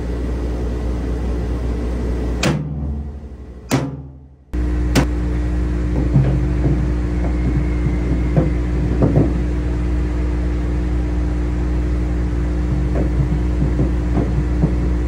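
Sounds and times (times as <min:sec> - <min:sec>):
metal knocks: 0:02.4 - 0:04.3, 0:05.9 - 0:09.4.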